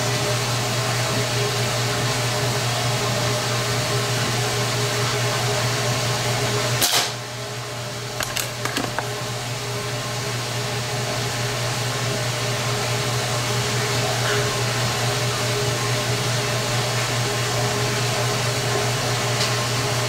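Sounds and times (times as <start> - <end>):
quick clicks: 8.2 - 9.1.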